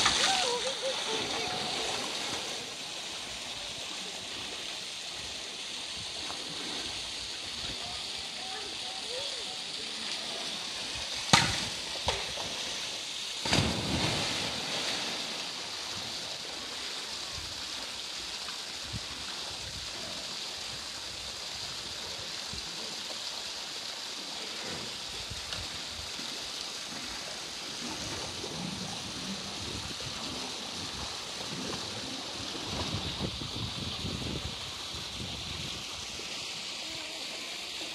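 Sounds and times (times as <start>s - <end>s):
polar bear splashing: 0.0s - 2.8s, 13.4s - 15.4s
pool water lapping: 0.0s - 37.9s.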